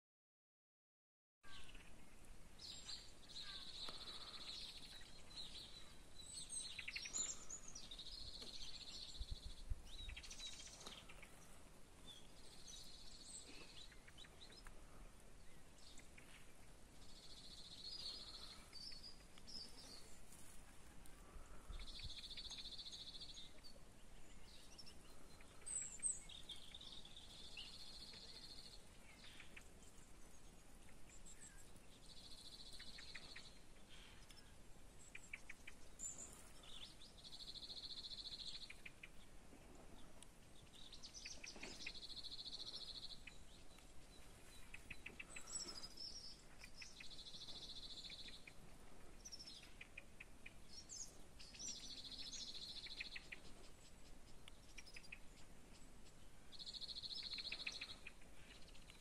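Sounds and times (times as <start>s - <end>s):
birds chirping and whistling: 2.6s - 11.5s, 40.7s - 48.6s, 56.7s - 58.9s.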